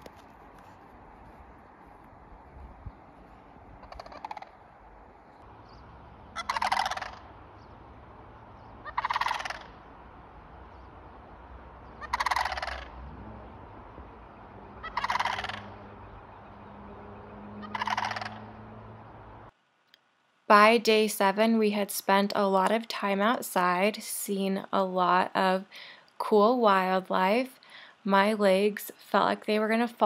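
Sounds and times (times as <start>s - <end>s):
sandhill cranes rattling calls: 3.8s - 4.7s, 5.6s - 19.5s.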